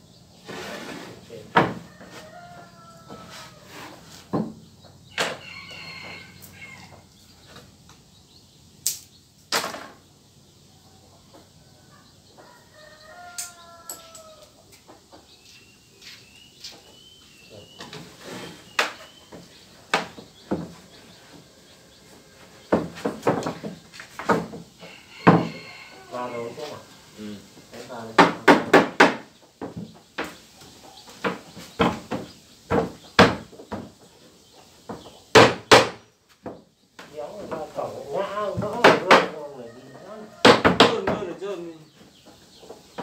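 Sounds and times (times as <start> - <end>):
wooden planks knocking: 1.5 - 1.9, 4.2 - 4.6, 18.8 - 20.9, 22.7 - 25.6, 28.0 - 30.4, 31.1 - 34.1, 34.9 - 39.4, 40.4 - 41.6
rooster crowing: 1.7 - 4.0, 5.1 - 7.1, 10.9 - 14.6, 24.8 - 27.9, 39.3 - 41.6.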